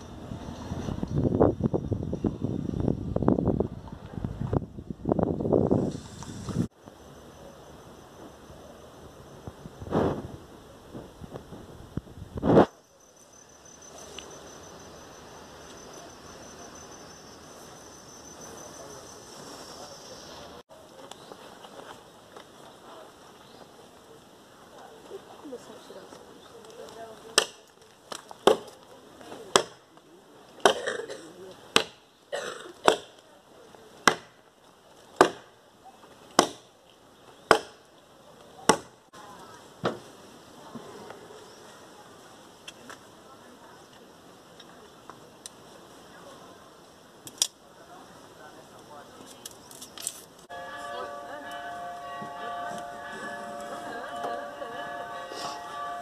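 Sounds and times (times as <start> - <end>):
outdoor background noise: 0.0 - 56.0
insects chirring: 6.0 - 9.8, 12.6 - 20.6
axe chopping log: 27.4 - 27.6, 28.2 - 28.8, 29.5 - 29.8, 31.7 - 32.0, 32.8 - 33.2, 34.0 - 34.4, 35.2 - 35.5, 36.4 - 36.7, 37.5 - 37.8, 38.6 - 38.9.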